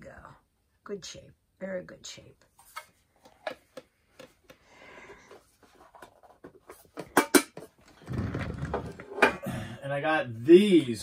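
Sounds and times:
metal tin clicking and rustling: 6.0s - 7.8s.

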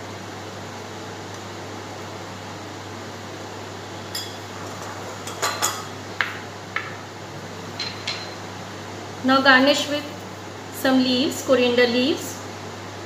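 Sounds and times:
glass bowls and spoon clinking: 4.0s - 5.9s, 7.8s - 8.4s.

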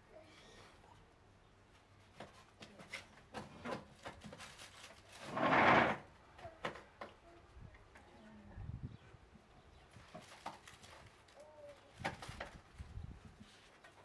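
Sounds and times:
rubbing scrape: 4.6s - 6.0s.

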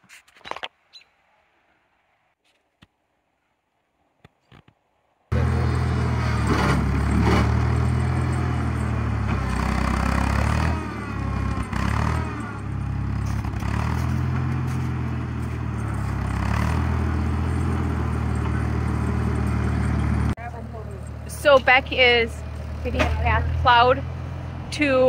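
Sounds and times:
tractor engine running: 5.3s - 25.0s.

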